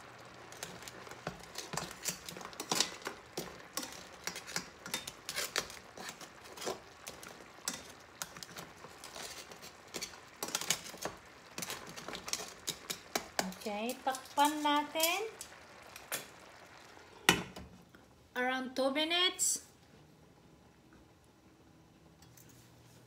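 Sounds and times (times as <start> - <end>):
simmering sauce crackle: 0.0 - 18.4
metal tongs clicking on pan: 0.5 - 16.3.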